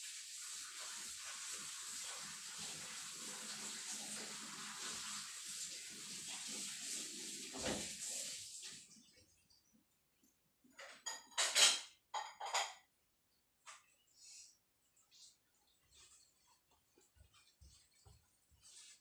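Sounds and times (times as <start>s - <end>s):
tap water running over beans: 0.0s - 9.2s.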